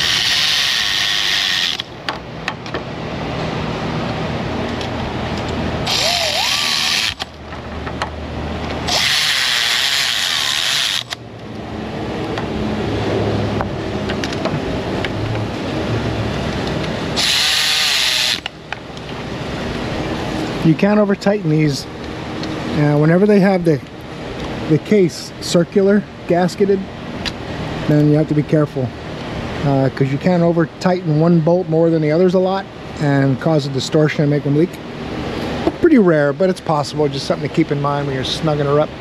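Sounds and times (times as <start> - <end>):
cordless power tool spinning: 0.0 - 1.9, 5.8 - 7.3, 8.8 - 11.2, 17.2 - 18.5.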